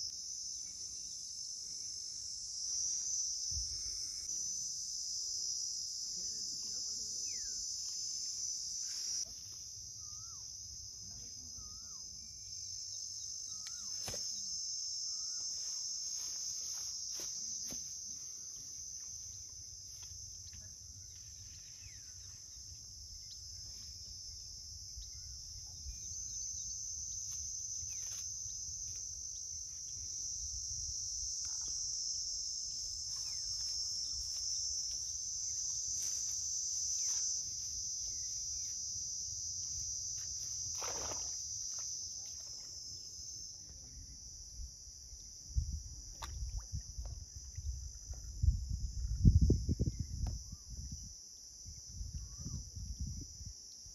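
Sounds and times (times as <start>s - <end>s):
high-pitched insect chorus: 0.0s - 53.9s.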